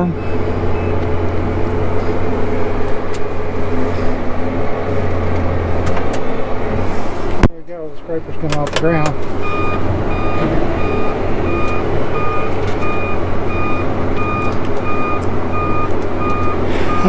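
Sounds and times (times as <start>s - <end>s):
electronic warning beeps: 0.0s - 1.0s, 9.4s - 17.0s
tractor engine running: 0.0s - 17.0s.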